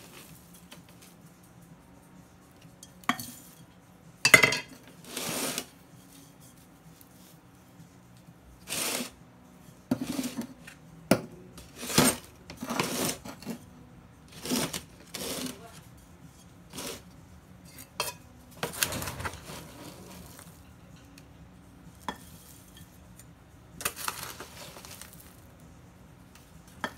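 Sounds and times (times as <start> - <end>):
plastic scoop scraping potting mix: 0.0 - 0.6, 5.0 - 5.8, 8.6 - 9.2, 9.9 - 10.6, 11.6 - 13.6, 14.3 - 15.9, 16.7 - 17.1, 18.6 - 20.6, 23.8 - 25.4
gritty soil pouring: 5.0 - 5.7, 8.7 - 9.1, 14.3 - 15.6, 23.8 - 25.4.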